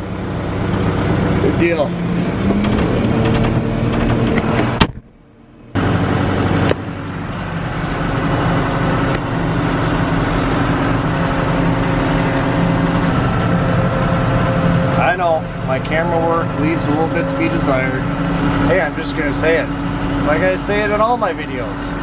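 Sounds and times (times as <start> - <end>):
tractor engine running: 0.0 - 22.0.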